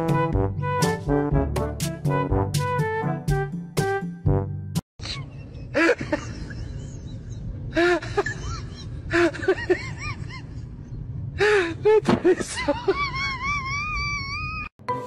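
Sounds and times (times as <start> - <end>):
moving bus drone: 5.0 - 14.5.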